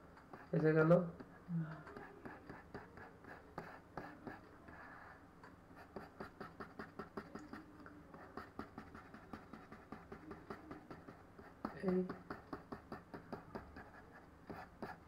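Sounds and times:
mouse clicks and scratching: 5.8 - 15.0.

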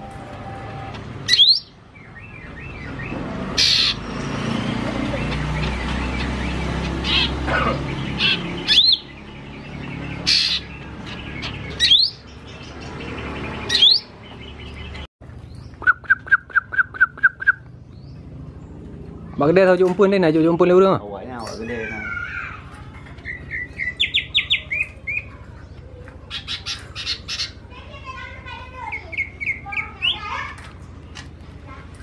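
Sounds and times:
bird singing whistles and calls: 1.3 - 4.0, 8.0 - 9.2, 11.4 - 12.2, 15.8 - 17.7.

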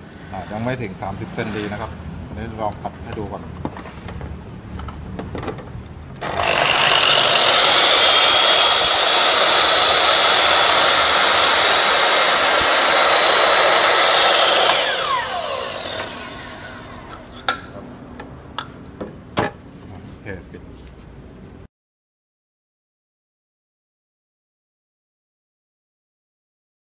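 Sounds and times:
miter saw cutting wood: 6.2 - 17.3
saw motor coasting down: 6.2 - 17.3.

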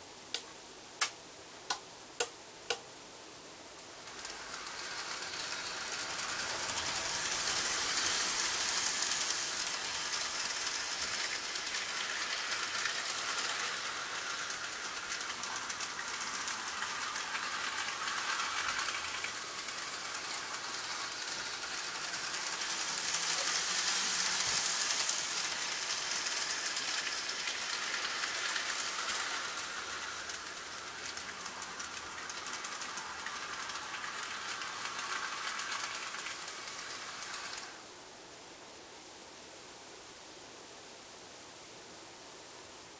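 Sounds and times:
model train rattling on track: 3.8 - 37.9.

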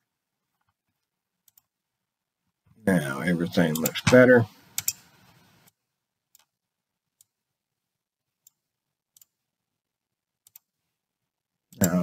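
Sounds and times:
faint computer mouse clicks: 1.4 - 1.7, 10.4 - 10.7.

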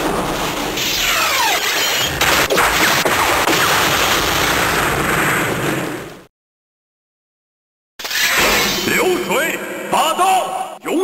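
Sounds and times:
toy sword sound effect crashing rush: 8.0 - 9.0.

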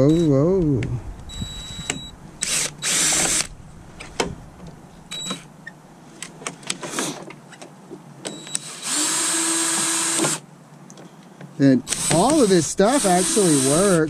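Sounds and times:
cordless drill running: 2.4 - 3.5, 8.6 - 10.4, 11.9 - 14.0.

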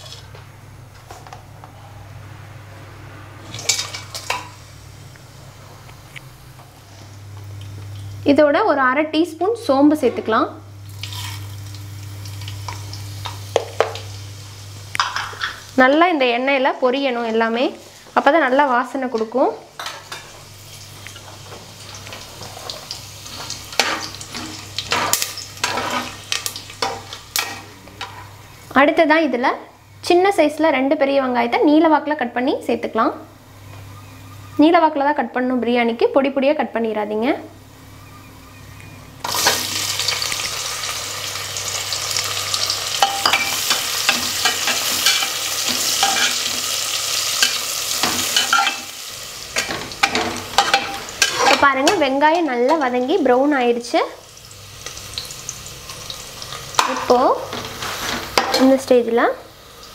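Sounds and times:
spices sizzling in oil: 0.0 - 0.4, 9.6 - 29.0, 39.2 - 59.9
spatula scraping pan: 50.0 - 52.0, 57.0 - 58.6.

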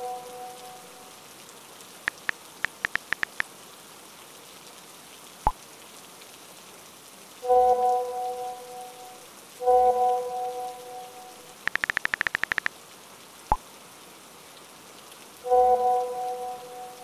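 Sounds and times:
steady rain-like hiss: 0.0 - 17.0
smartphone keyboard taps: 2.1 - 3.4, 11.7 - 12.7
message send pop: 11.7 - 12.7.

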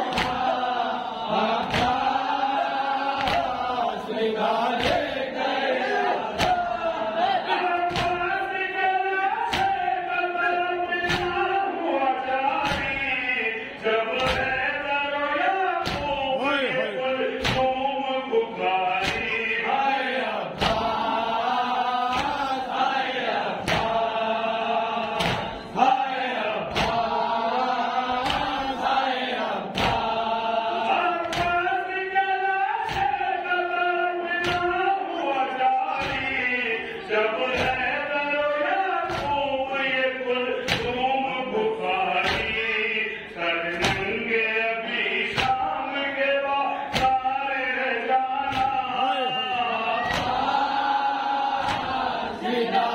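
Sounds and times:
men chanting in unison: 0.0 - 52.9
chest slaps: 0.1 - 0.5, 19.0 - 19.4, 25.1 - 25.7, 26.7 - 27.2, 51.6 - 52.0.

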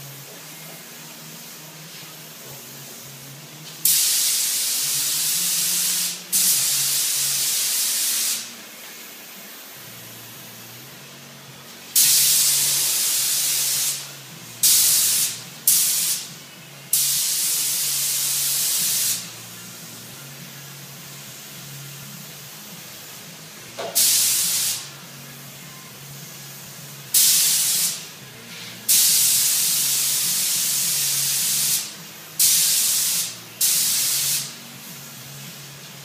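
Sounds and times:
spray gun hissing bursts: 3.8 - 8.6, 11.9 - 19.8, 23.9 - 24.9, 27.1 - 35.8.

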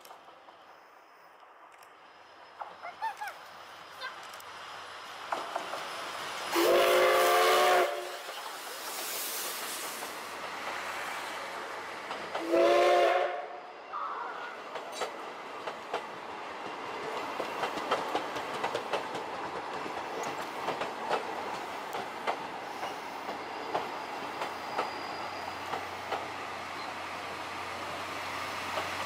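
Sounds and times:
train wheels clicking over rail joints: 0.0 - 13.2, 14.6 - 29.0
steam locomotive whistle blast: 6.5 - 8.2, 12.4 - 14.4.

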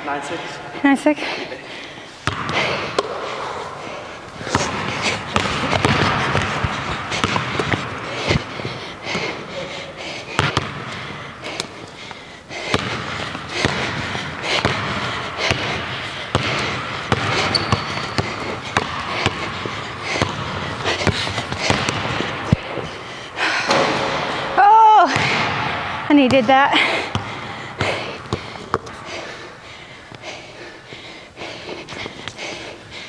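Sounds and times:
basketball bouncing on hardwood floor: 2.2 - 3.2, 4.4 - 9.3, 10.3 - 11.6, 12.6 - 22.8, 25.0 - 29.0.

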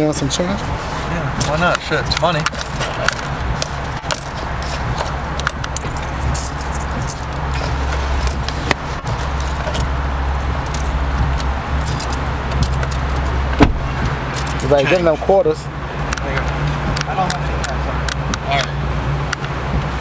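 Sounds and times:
low hum inside car: 0.0 - 20.0
coins jingling and clinking: 2.5 - 8.5, 9.1 - 13.5, 14.3 - 15.0.

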